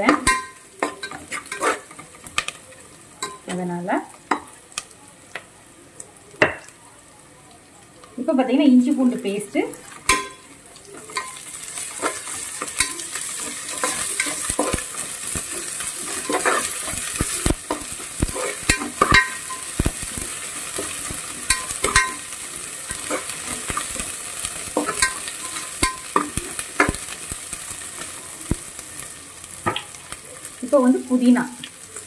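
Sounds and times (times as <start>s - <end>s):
vegetables sizzling in hot oil: 0.0s - 32.0s
metal spoon scraping a pot: 0.1s - 2.1s, 11.0s - 19.7s, 22.9s - 24.0s.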